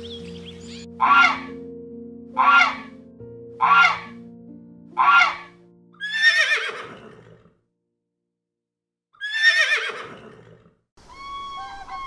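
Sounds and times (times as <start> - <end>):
horse whinnying: 5.0 - 7.5, 9.2 - 10.7.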